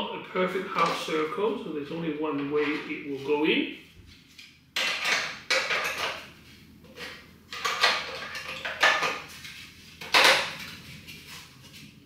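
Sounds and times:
plastic parts knocking and clattering: 4.8s - 6.3s, 7.0s - 9.4s, 10.0s - 10.8s.

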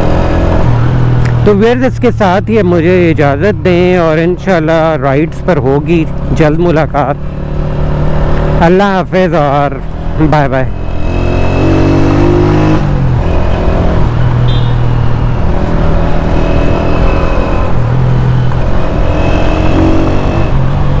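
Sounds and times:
motorcycle engine running: 0.0s - 21.0s
road and wind noise: 0.0s - 21.0s.

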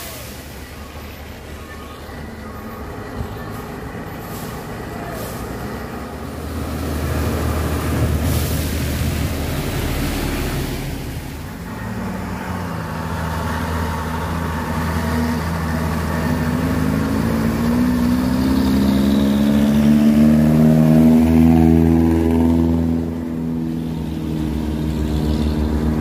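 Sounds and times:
diesel truck engines labouring: 0.0s - 26.0s
vehicle passing close: 4.4s - 26.0s.

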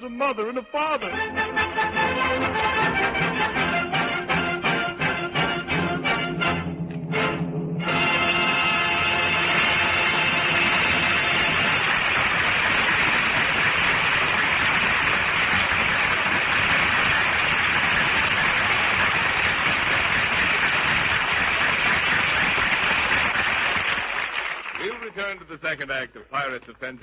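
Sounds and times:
audience applauding: 7.9s - 25.7s.

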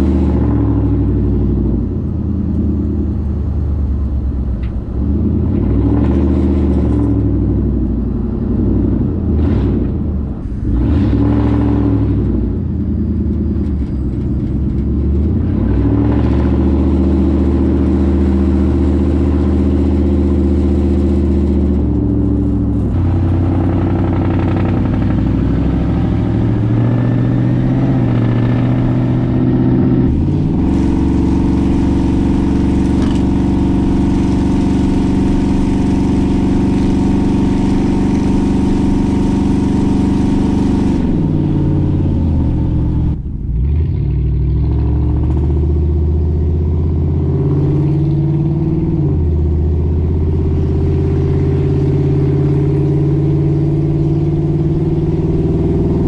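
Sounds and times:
truck engine exhaust driving: 0.0s - 56.0s.

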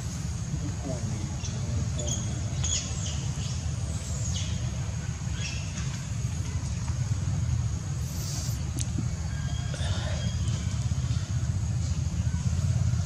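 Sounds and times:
brief hiss: 8.0s - 8.7s.

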